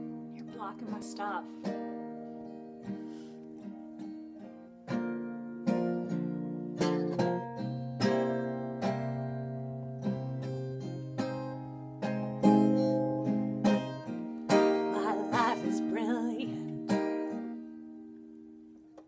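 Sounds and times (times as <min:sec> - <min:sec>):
acoustic guitar chords ringing: 0:00.0 - 0:19.0.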